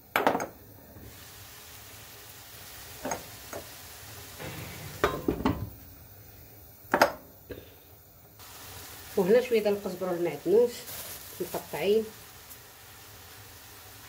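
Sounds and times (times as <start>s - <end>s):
vegetables sizzling in a pan: 0.0s - 14.0s.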